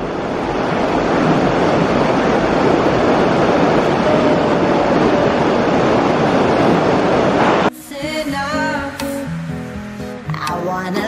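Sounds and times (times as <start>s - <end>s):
water rushing down rocks: 0.0s - 7.7s.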